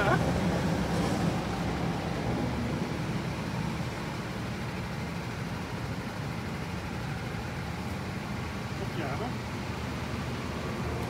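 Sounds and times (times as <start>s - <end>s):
go-kart engines droning: 0.0s - 4.0s.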